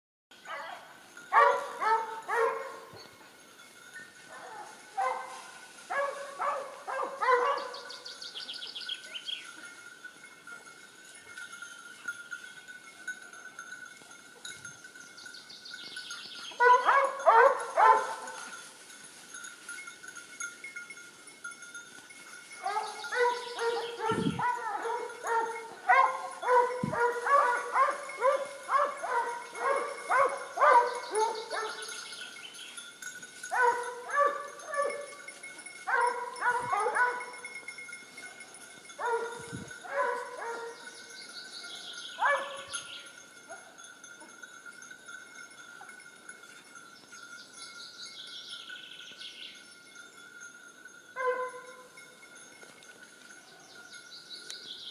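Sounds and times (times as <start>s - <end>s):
dog barking: 0.5s - 2.9s, 4.4s - 7.9s, 16.6s - 18.4s, 22.6s - 31.9s, 33.5s - 35.0s, 35.9s - 37.3s, 39.0s - 40.8s, 42.2s - 42.7s, 51.2s - 51.8s.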